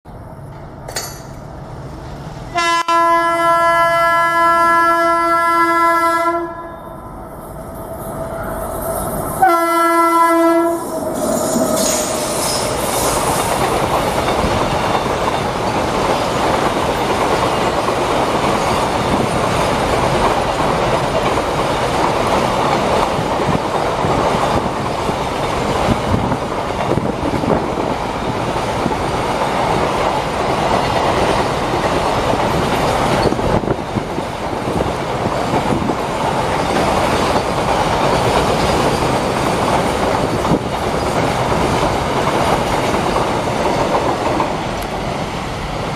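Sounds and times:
train wheels on rail: 0.1s - 45.9s
locomotive horn blasts: 2.5s - 7.0s, 9.4s - 11.0s.

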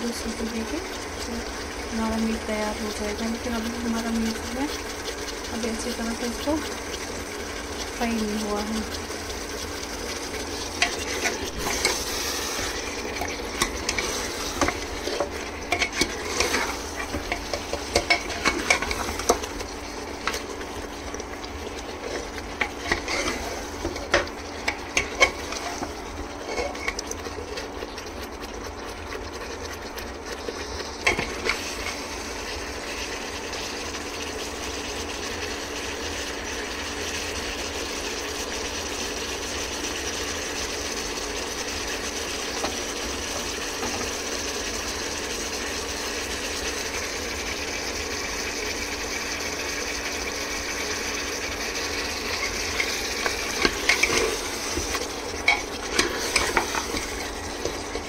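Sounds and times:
meat sizzling in oil: 0.0s - 58.0s
spoon scraping a pot: 10.8s - 19.6s, 22.0s - 27.7s, 52.4s - 58.0s.

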